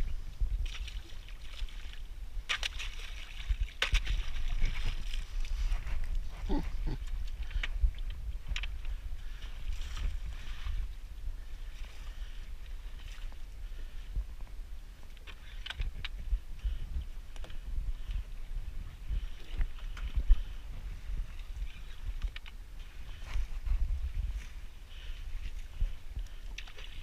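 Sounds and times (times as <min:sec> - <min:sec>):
steady low rumble: 0:00.0 - 0:27.0
water lapping against hull: 0:00.0 - 0:27.0.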